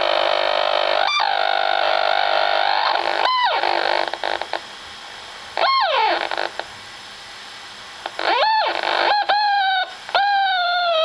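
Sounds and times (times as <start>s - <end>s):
steady electronic hiss: 0.0s - 11.0s
swooping electronic whistles: 1.0s - 4.0s, 5.6s - 6.4s, 8.2s - 11.0s.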